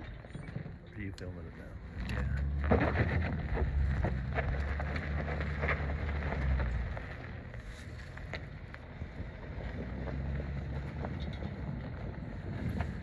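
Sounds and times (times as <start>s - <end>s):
wind buffeting microphone: 8.6s - 13.0s.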